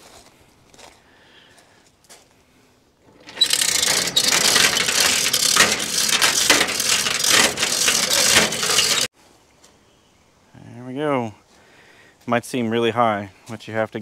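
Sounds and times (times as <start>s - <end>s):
chain rattling through hoist: 3.1s - 9.1s
ratchet clicking rapidly: 3.1s - 9.1s.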